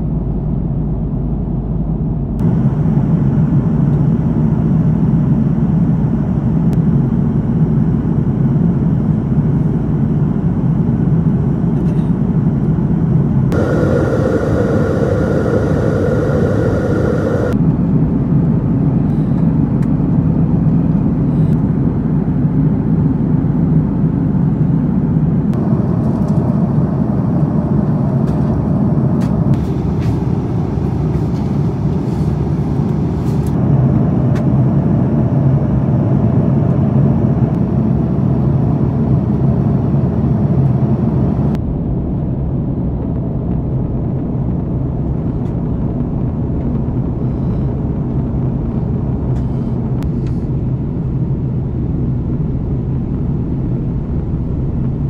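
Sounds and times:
airliner cabin jet engine drone: 0.0 - 55.0
low hum: 12.4 - 19.3, 21.3 - 55.0.

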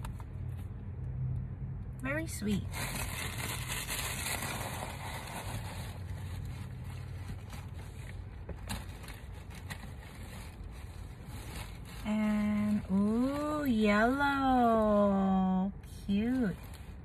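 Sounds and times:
low rumble inside car: 0.0 - 17.0
packaging rustling: 2.6 - 13.6.

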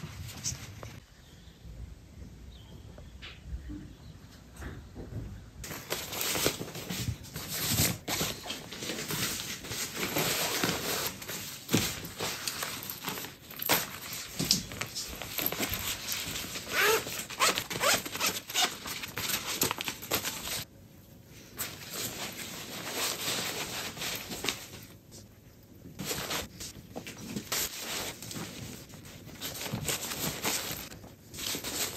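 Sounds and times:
packing cubes rustling: 27.2 - 31.9.

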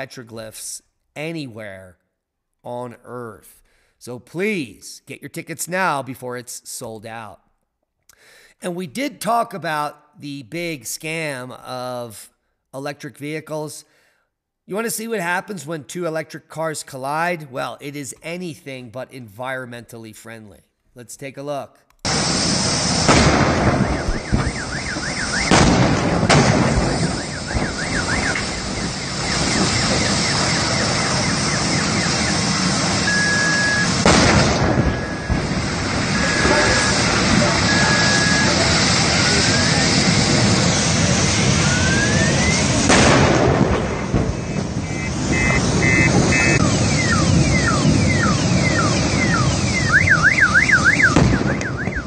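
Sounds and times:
fire burning: 22.0 - 52.0
loud bang: 22.1 - 50.2, 51.0 - 52.0
vehicle explosions: 22.1 - 52.0
car alarm warbling: 23.7 - 25.7, 26.6 - 40.0, 41.6 - 42.8, 44.3 - 52.0
rising whistling tones: 23.8 - 25.6, 26.9 - 32.4, 33.0 - 34.0, 34.9 - 39.8, 41.5 - 42.8, 44.4 - 52.0.

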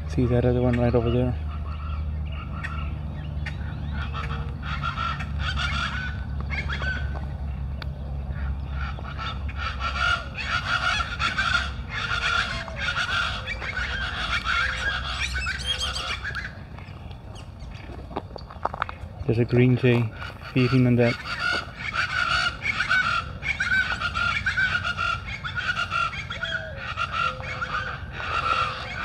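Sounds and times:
birds calling in chorus: 0.0 - 29.0.

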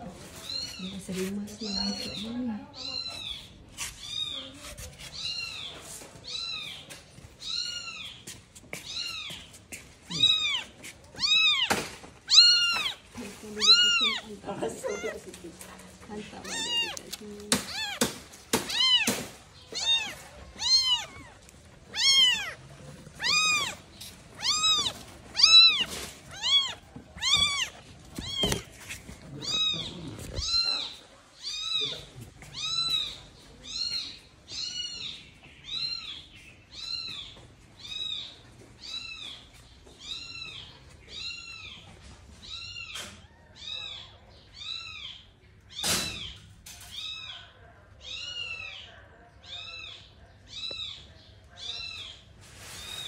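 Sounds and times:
kitten mewing: 10.1 - 33.2.

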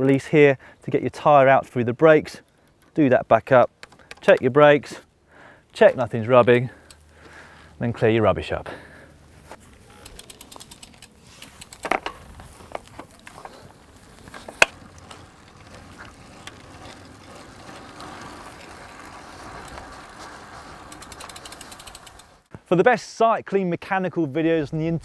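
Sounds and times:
bicycle tyres on tarmac: 0.0 - 22.8
small clicks and knocks: 3.7 - 4.5, 10.0 - 13.7.

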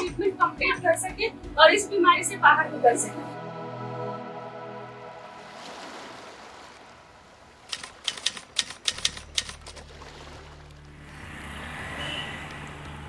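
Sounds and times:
typewriter key clicks: 7.7 - 9.8.

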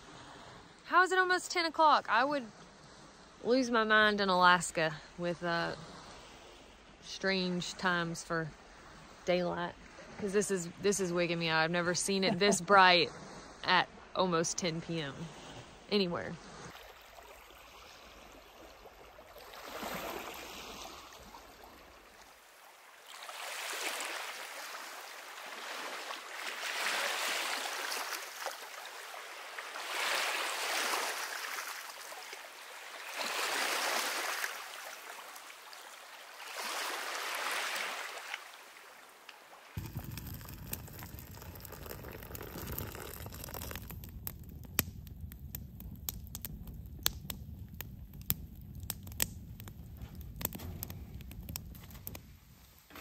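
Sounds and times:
small waves lapping on beach: 0.0 - 40.8
campfire crackling and popping: 39.7 - 53.0.

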